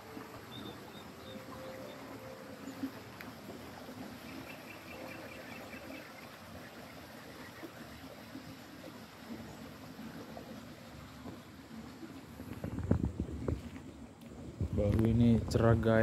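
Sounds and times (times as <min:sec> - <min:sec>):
faint outdoor background noise: 0:00.0 - 0:16.0
faint high chirping: 0:00.4 - 0:03.3, 0:04.1 - 0:07.7.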